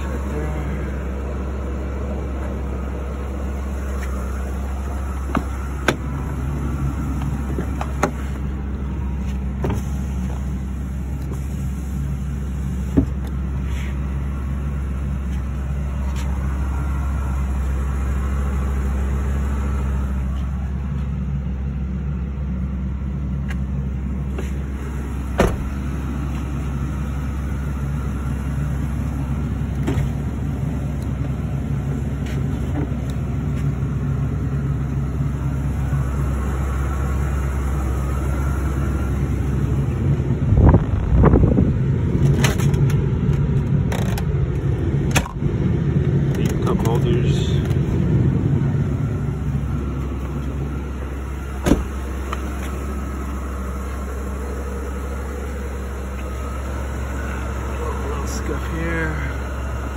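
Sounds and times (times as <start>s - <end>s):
engine idling: 0.0s - 59.9s
clicks and knocks of doors: 25.4s - 25.7s, 51.6s - 51.9s.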